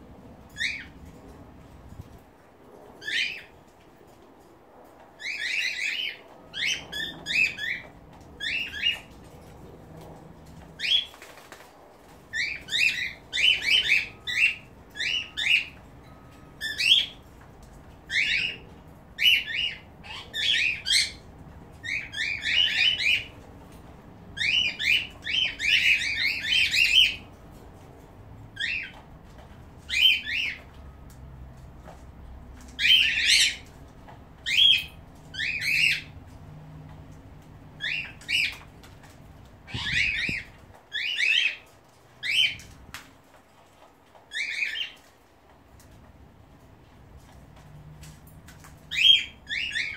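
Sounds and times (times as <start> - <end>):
parrots calling shrilly: 19.2 - 21.2, 39.6 - 41.6.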